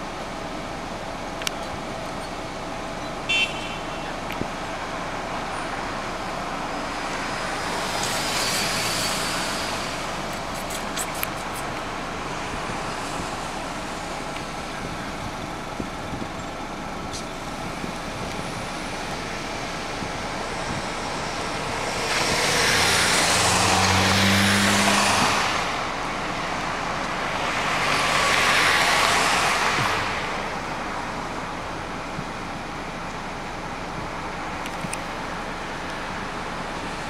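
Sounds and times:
steady roadway hum: 0.0s - 37.0s
vehicle passing: 19.4s - 30.6s.

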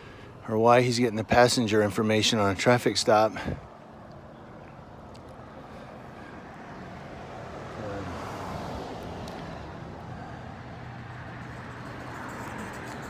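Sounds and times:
background traffic: 0.0s - 13.0s
car passing: 3.1s - 13.0s.

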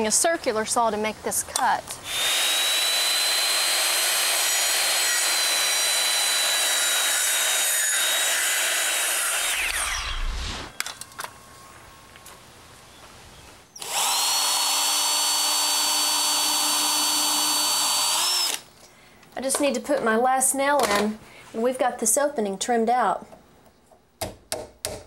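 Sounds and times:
power drill running: 2.0s - 10.3s, 13.8s - 18.6s
circular saw cutting wood: 2.1s - 10.7s.

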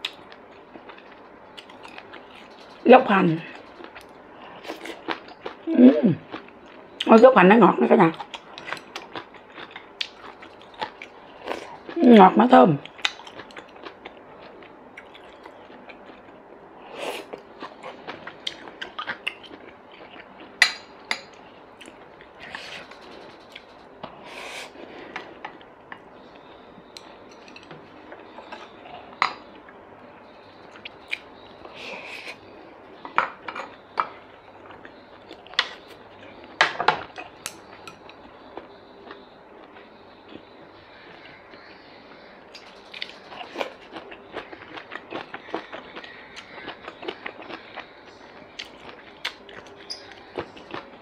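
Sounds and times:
chewing: 0.0s - 2.8s, 3.5s - 6.8s, 8.1s - 12.0s, 12.8s - 16.4s, 17.0s - 20.6s, 42.5s - 51.0s.

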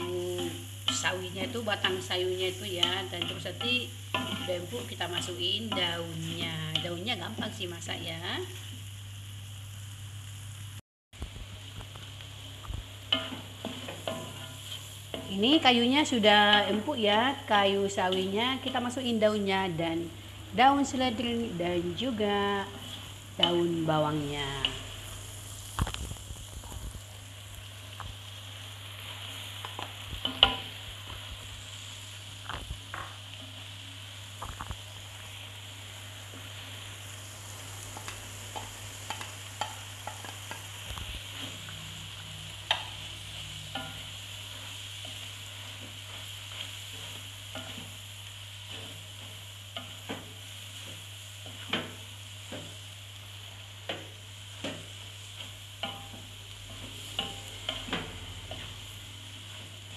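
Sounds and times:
spatula scraping and tapping pan: 0.0s - 7.6s, 11.8s - 17.4s, 29.6s - 31.4s, 37.9s - 48.0s, 48.6s - 52.8s, 53.8s - 59.9s
wok sizzling: 0.0s - 59.9s.

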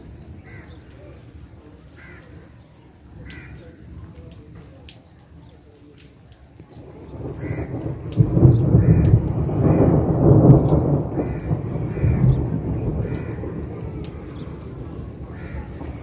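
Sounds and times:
rain falling: 0.0s - 16.0s
thunder rumbling: 6.8s - 16.0s.

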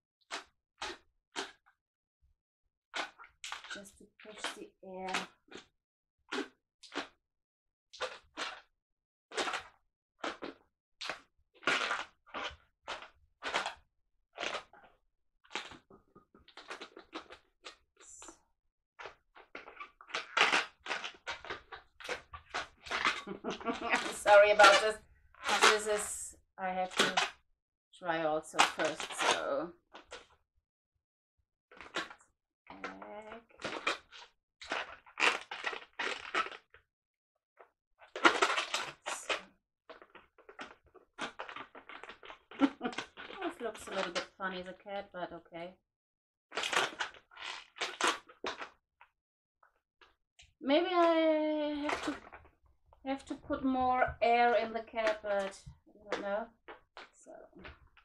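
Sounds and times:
balloons rubbing and squeaking: 3.0s - 5.6s, 8.0s - 8.7s, 9.3s - 13.8s, 14.4s - 14.9s, 15.5s - 18.3s, 19.0s - 27.3s, 28.6s - 30.3s, 31.8s - 36.8s, 38.0s - 44.7s, 46.5s - 48.8s, 50.8s - 52.4s.

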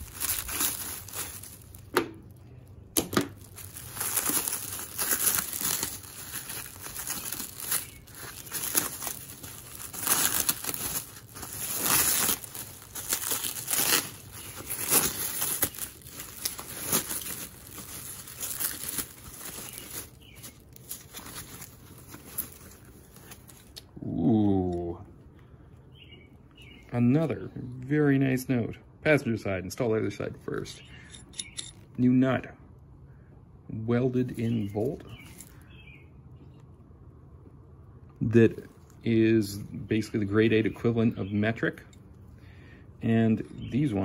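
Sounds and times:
plastic wrap crinkling and tearing: 0.0s - 2.4s, 3.1s - 23.9s, 35.2s - 35.7s.

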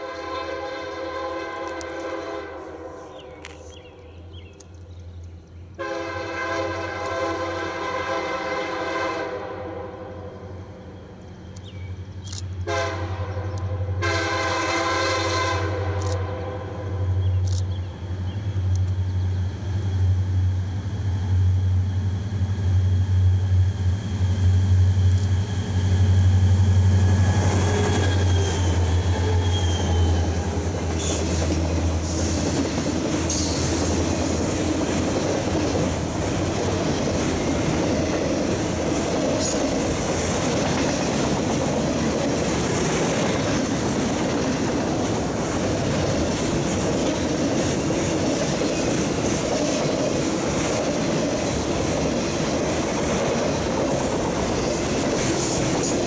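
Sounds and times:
diesel locomotive engine drone: 0.0s - 56.0s
high wheel squeals: 27.1s - 31.3s.

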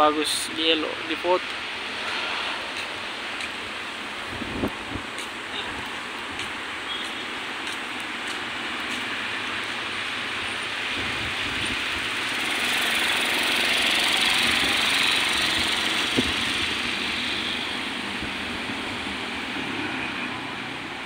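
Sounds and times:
motorbike passing: 10.2s - 21.0s.

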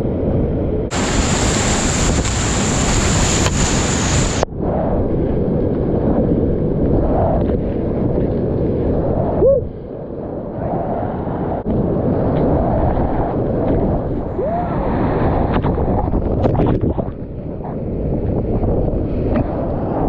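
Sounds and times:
wind buffeting microphone: 0.0s - 20.0s
rapids rushing: 0.9s - 4.4s
water splash: 0.9s - 4.4s.

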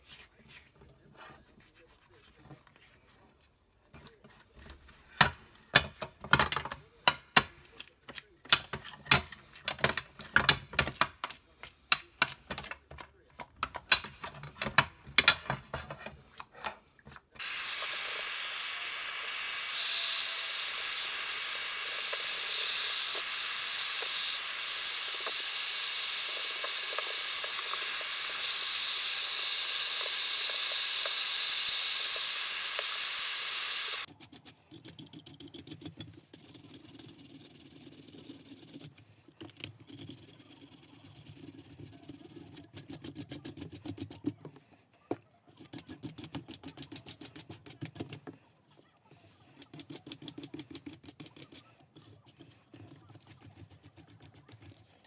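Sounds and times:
loud steady hiss: 17.4s - 34.1s.

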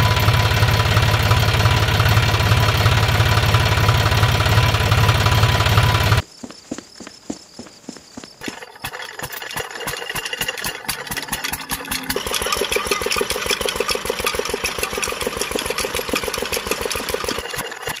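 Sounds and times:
small diesel engine chugging: 0.0s - 6.2s, 8.4s - 18.0s.

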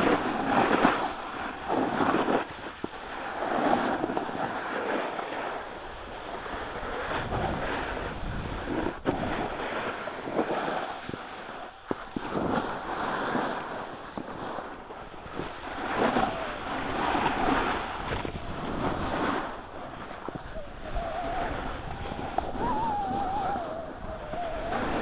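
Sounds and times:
skis scraping snow: 0.0s - 25.0s
wind rushing over microphone: 5.6s - 25.0s
wavering whistle-like tone: 15.9s - 19.5s, 20.2s - 25.0s.

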